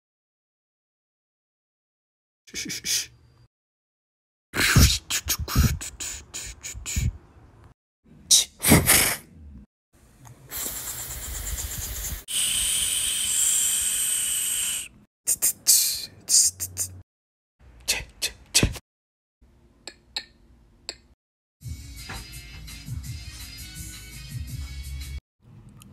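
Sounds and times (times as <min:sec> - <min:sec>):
beatboxing hiss: 0:02.5 - 0:03.1, 0:04.6 - 0:07.2, 0:08.3 - 0:09.2, 0:10.4 - 0:17.0
beatboxing pops and clicks: 0:04.6 - 0:07.1, 0:15.3 - 0:17.0, 0:17.8 - 0:18.8.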